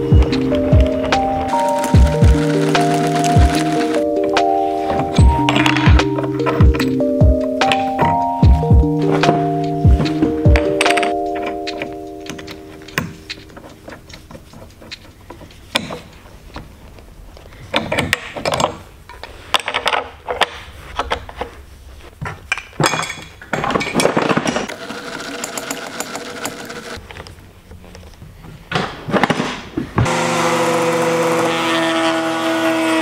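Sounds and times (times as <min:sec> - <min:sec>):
wrenches clattering on metal plate: 0:22.2 - 0:24.7
router motor switching on: 0:30.1 - 0:32.9.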